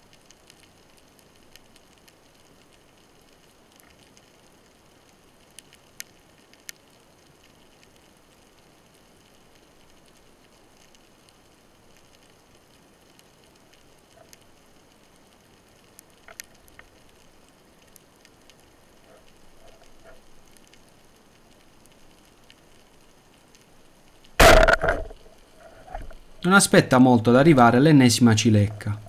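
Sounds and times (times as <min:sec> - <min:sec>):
underwater crackling clicks: 0:00.1 - 0:04.7, 0:09.2 - 0:26.5.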